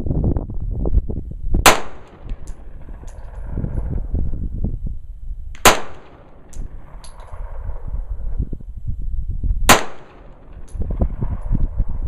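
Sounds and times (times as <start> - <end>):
pistol shots: 1.6 - 2.6, 5.6 - 7.2, 9.7 - 10.8.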